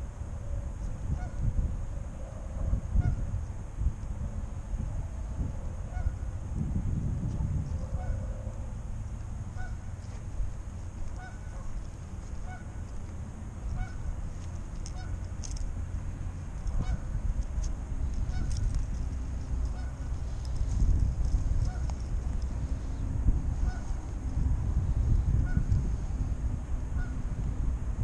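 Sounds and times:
wind rumbling on microphone: 0:00.0 - 0:28.0
geese honking: 0:05.9 - 0:06.2, 0:07.8 - 0:08.5, 0:09.5 - 0:10.1, 0:11.0 - 0:12.9, 0:13.7 - 0:14.1, 0:14.8 - 0:15.2, 0:16.8 - 0:17.1, 0:18.2 - 0:18.6, 0:19.6 - 0:20.5, 0:21.6 - 0:22.1, 0:23.6 - 0:23.9, 0:27.0 - 0:27.2
small sharp ticks: 0:14.3 - 0:15.7, 0:17.4 - 0:22.6.

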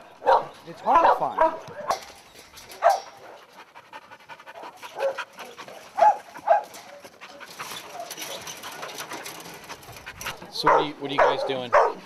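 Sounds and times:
dogs barking: 0:00.2 - 0:02.2, 0:02.8 - 0:03.6, 0:04.5 - 0:09.3, 0:10.2 - 0:12.0.

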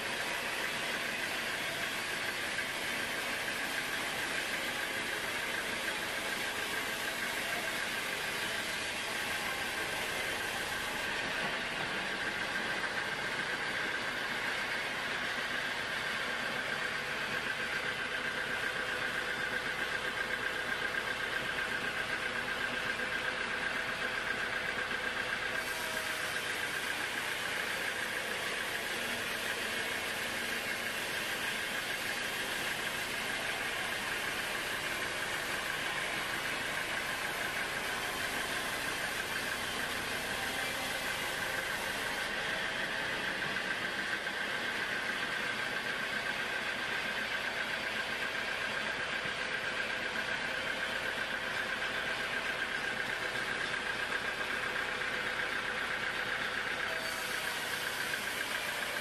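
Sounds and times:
saw blade whine: 0:00.0 - 0:21.0, 0:24.0 - 0:47.1, 0:50.9 - 0:59.0
sawmill machine drone: 0:00.0 - 0:59.0
bright hiss: 0:56.9 - 0:59.0.

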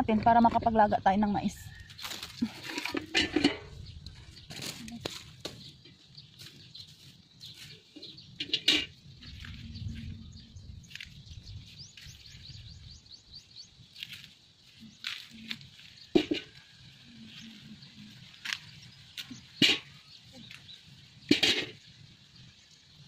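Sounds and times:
corn plants rustling and cracking: 0:01.7 - 0:12.5, 0:13.8 - 0:21.9
small bird chirping trill: 0:03.7 - 0:23.0
low rumble: 0:09.1 - 0:13.4.

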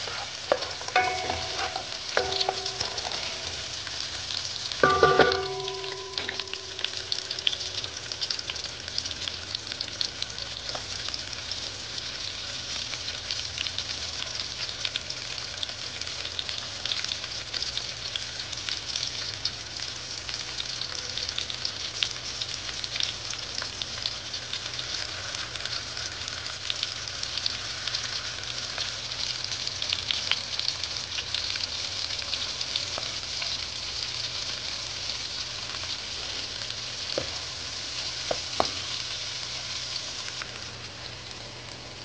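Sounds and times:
vegetables sizzling in oil: 0:00.0 - 0:42.0
oil popping: 0:04.7 - 0:08.7.

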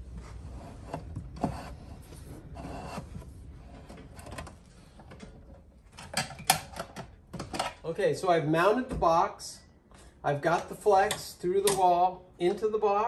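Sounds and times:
wires rustling and scraping: 0:00.0 - 0:07.8.

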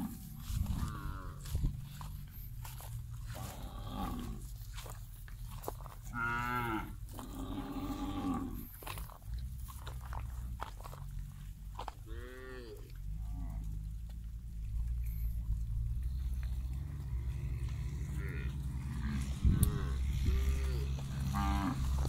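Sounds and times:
cattle mooing: 0:00.0 - 0:02.1, 0:03.2 - 0:04.5, 0:06.0 - 0:08.7, 0:12.0 - 0:13.9, 0:15.6 - 0:22.0
low steady rumble: 0:00.0 - 0:22.0.

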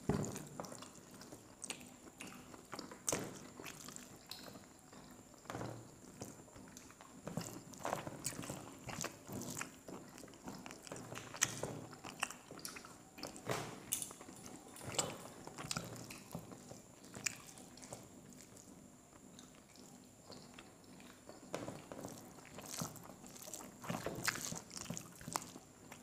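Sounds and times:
chewing and lip smacks: 0:00.2 - 0:26.0
fingers squishing wet rice: 0:22.0 - 0:26.0.

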